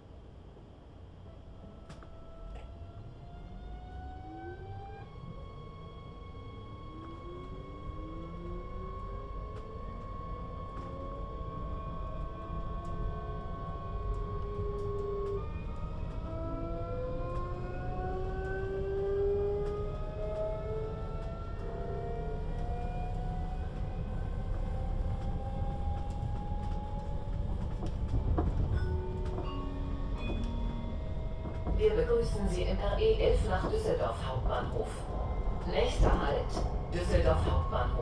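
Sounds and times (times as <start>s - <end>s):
low running rumble: 22.3s - 38.0s.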